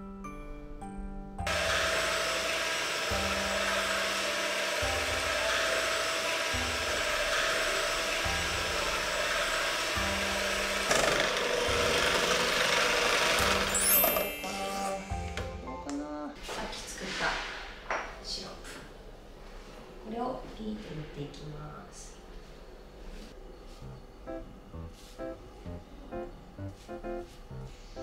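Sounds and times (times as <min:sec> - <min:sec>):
soft background music: 0:00.0 - 0:17.5, 0:23.4 - 0:28.0
electric hand mixer whining: 0:01.5 - 0:15.5.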